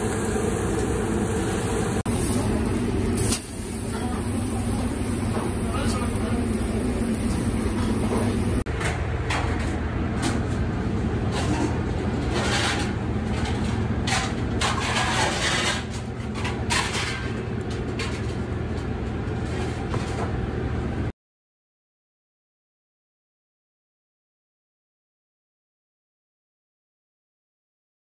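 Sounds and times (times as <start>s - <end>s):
steady low hum: 0.0s - 21.1s
kitchen clatter: 11.2s - 18.4s.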